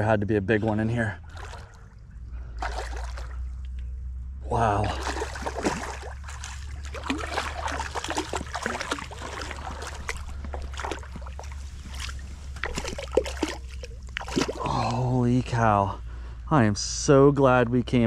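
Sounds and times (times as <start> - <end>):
fish splashing in water: 1.2 - 2.0, 2.6 - 3.6, 4.8 - 15.1.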